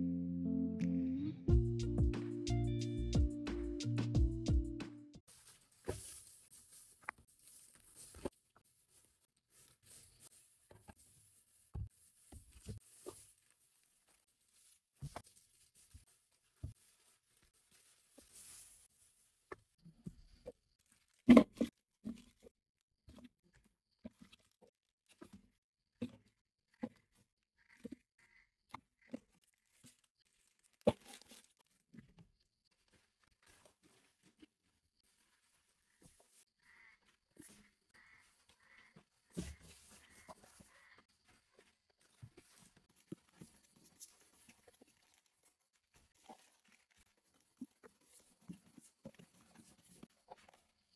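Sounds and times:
plastic packaging handling: 5.3 - 18.9.

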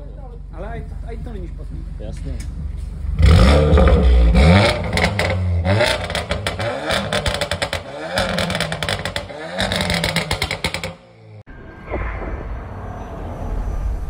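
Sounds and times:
car engine revving: 1.1 - 11.5
exhaust crackling pops: 2.1 - 11.1.

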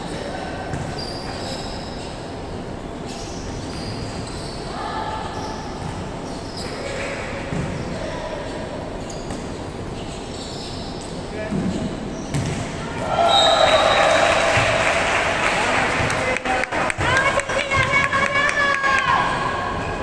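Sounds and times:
shoes squeaking on court: 0.1 - 12.7
players' voices: 11.1 - 20.0.

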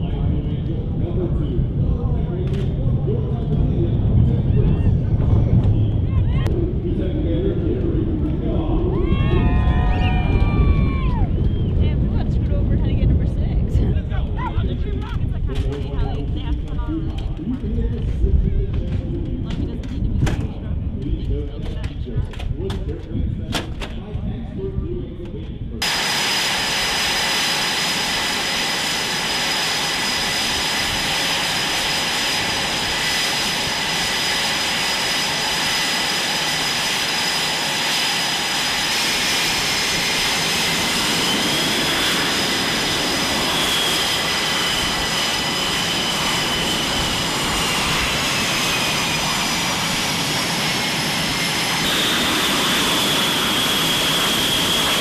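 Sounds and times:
jet engines whining: 0.0 - 55.0.

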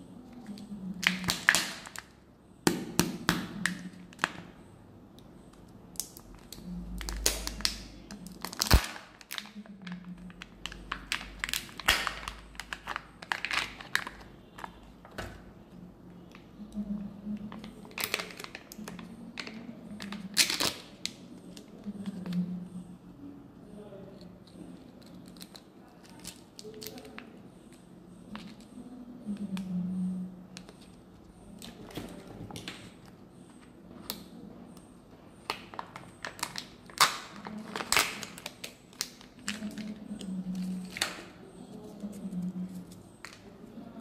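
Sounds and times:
foil wrapper crinkling and tearing: 7.0 - 14.8.

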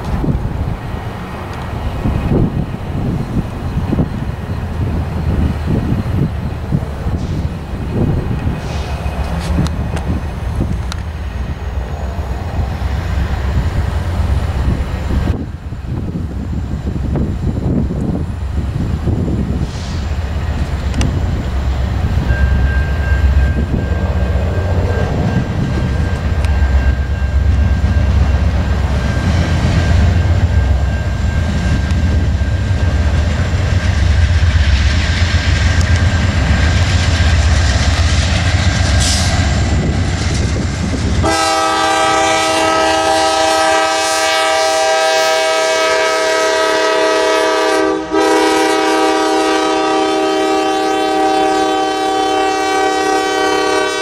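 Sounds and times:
freight train rumbling past: 0.0 - 54.0
locomotive air horn: 41.2 - 54.0.

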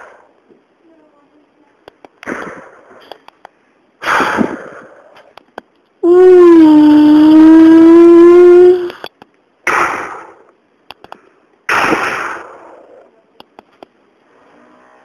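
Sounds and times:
hissing bursts: 4.0 - 5.2, 9.6 - 10.5, 11.7 - 13.0
child holding long note: 6.0 - 8.9.

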